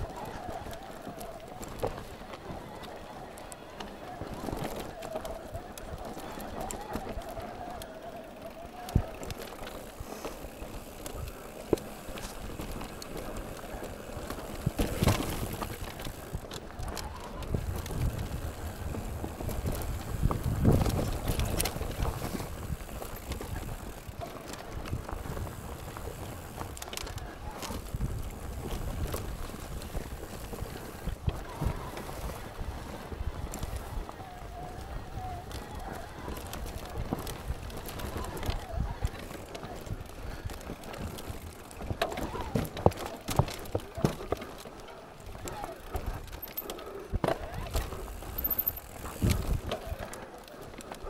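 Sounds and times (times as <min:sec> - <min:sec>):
bike rattling and knocking: 0:00.0 - 0:51.0
bike tyres on rough ground: 0:00.0 - 0:51.0.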